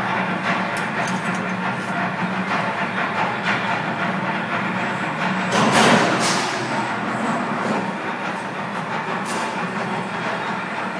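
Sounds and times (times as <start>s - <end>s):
factory machinery hum: 0.0s - 10.9s
rough handling noise: 0.7s - 2.0s.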